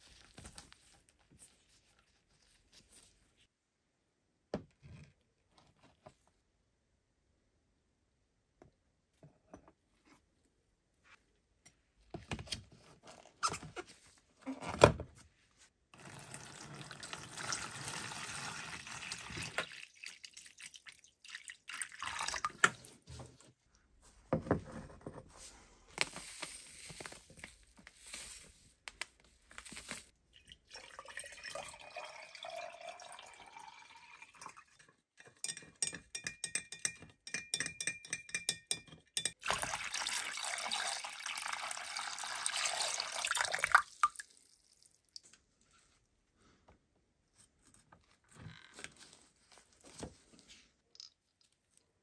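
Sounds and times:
water pouring into plastic tub: 0:16.0 - 0:23.1, 0:29.9 - 0:34.8, 0:39.4 - 0:45.2.

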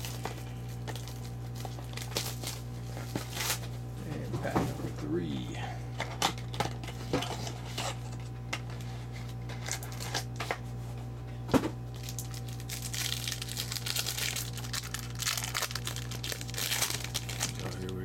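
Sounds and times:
wrapper crinkling and tearing: 0:00.0 - 0:03.7, 0:11.9 - 0:18.0.

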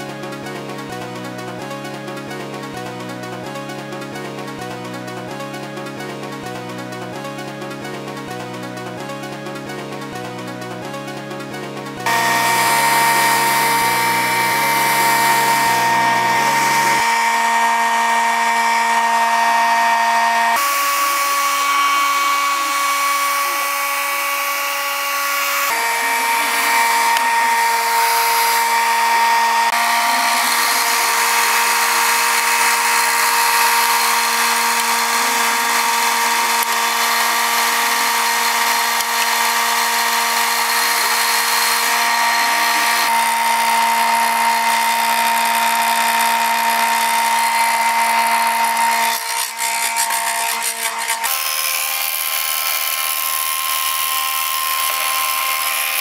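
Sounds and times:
hair dryer running: 0:12.0 - 0:56.0.

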